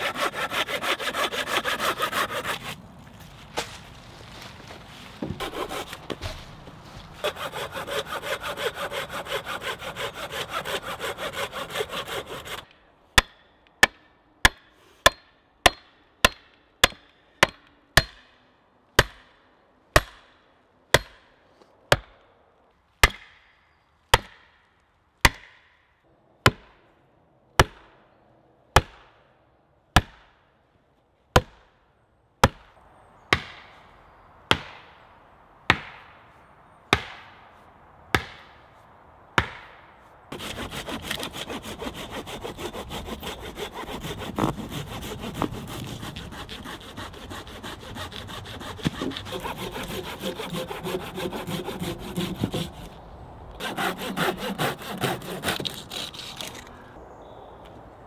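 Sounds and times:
hand saw rasping through branch: 0.0 - 2.8, 5.2 - 6.4, 7.2 - 13.3, 40.3 - 53.0, 53.6 - 56.7.

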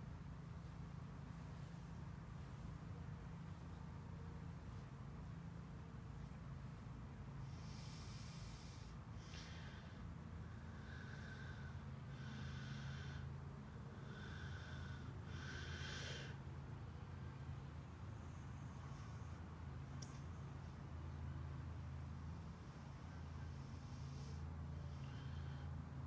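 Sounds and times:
person breathing through the nose: 7.4 - 16.4.

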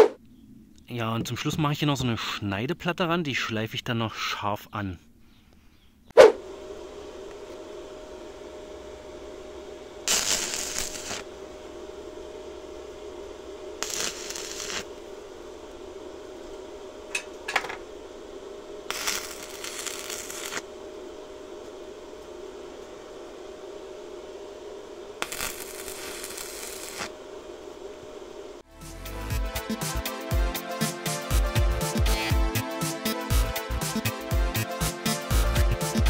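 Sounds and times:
steady hum: 0.0 - 36.0
welding arc crackling: 10.0 - 11.5, 12.4 - 15.8, 18.6 - 21.0, 24.0 - 27.2.

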